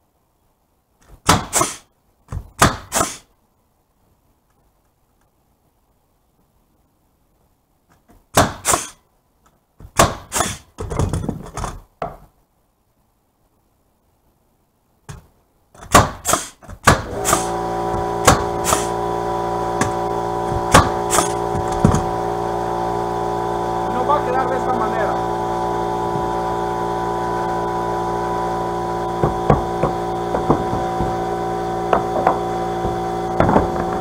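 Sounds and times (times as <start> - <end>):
nail gun firing into wood: 2.6 - 3.2, 8.4 - 9.0, 10.0 - 10.6, 15.9 - 17.5, 18.2 - 18.9, 20.7 - 22.0
boards knocking: 9.8 - 12.3, 15.1 - 18.9, 19.8 - 22.1, 29.2 - 34.0
air compressor humming: 17.0 - 34.0
wood blocks knocking: 29.2 - 34.0.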